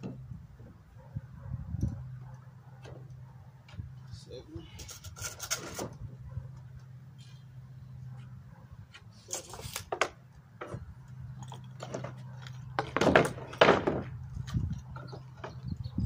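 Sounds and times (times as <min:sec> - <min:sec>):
wooden panels scraping and rubbing: 0:04.7 - 0:06.0, 0:09.1 - 0:10.8, 0:11.8 - 0:15.7.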